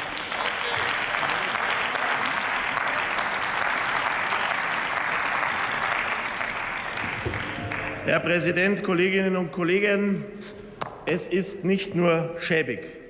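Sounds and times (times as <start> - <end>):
crowd applauding: 0.0 - 8.4.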